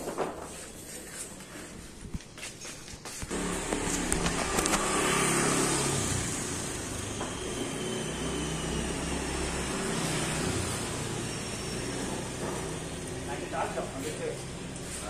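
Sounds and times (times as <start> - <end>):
truck engine humming: 3.3 - 15.0.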